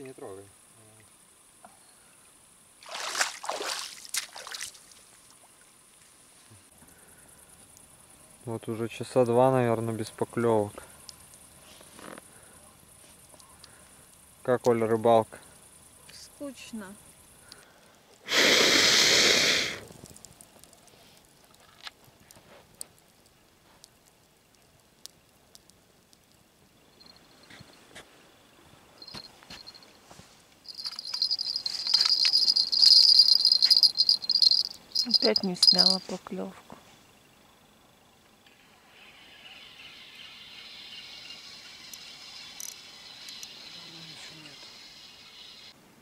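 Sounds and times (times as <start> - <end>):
river water splashing: 2.8 - 5.6
faint fire crackles: 4.8 - 31.6
person blowing on coals: 18.2 - 19.9.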